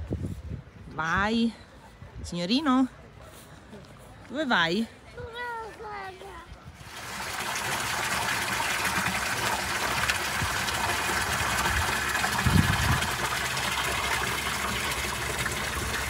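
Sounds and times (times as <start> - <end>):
water splashing into stone basin: 6.8 - 16.0.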